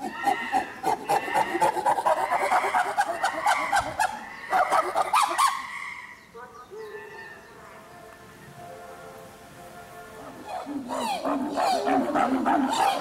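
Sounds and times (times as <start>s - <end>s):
chimpanzee calling: 0.0s - 7.4s, 10.2s - 13.0s.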